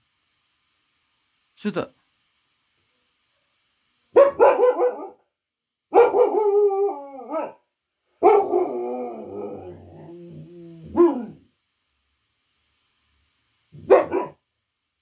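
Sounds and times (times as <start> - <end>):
dog howling: 6.0 - 7.6, 8.2 - 11.5.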